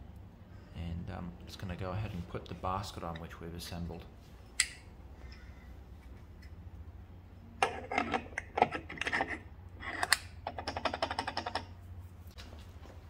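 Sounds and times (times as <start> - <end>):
metal-on-metal scraping and clicking: 7.6 - 11.7.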